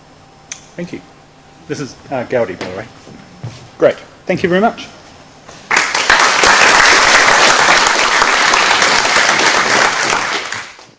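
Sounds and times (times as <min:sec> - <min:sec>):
people applauding: 0:05.7 - 0:10.9.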